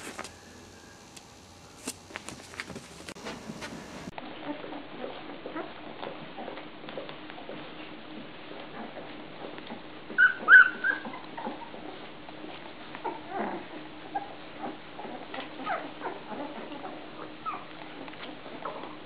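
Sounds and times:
puppies squeaking and whimpering: 8.7s - 19.0s
puppy grunts: 13.0s - 19.0s.

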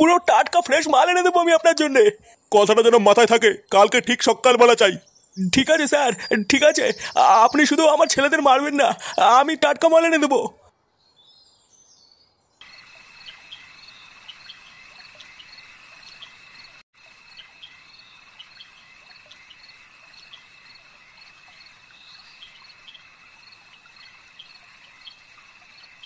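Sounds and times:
crickets trilling: 12.6s - 26.0s
short cricket chirps: 12.6s - 26.0s.

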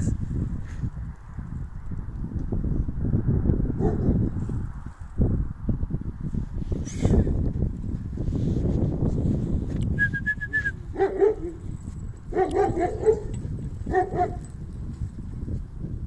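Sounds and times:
dogs yelping: 10.9s - 14.5s.

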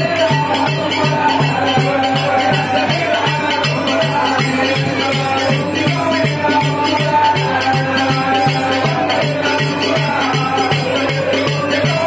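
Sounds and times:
drum beat: 0.0s - 12.0s
jingling percussion: 0.0s - 12.0s.

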